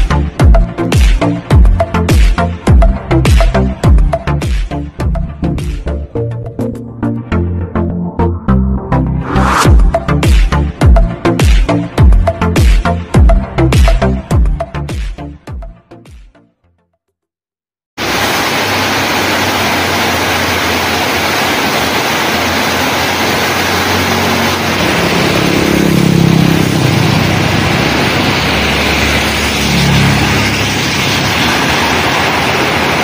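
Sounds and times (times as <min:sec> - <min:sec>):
heavy rain hissing: 0:18.0 - 0:33.0
motorbike passing on wet road: 0:18.0 - 0:33.0
vehicle passing: 0:22.4 - 0:33.0.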